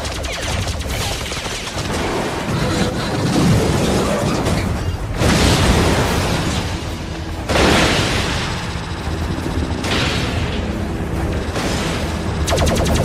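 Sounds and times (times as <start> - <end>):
rapid weapon fire: 0.0 - 2.6, 11.5 - 13.0.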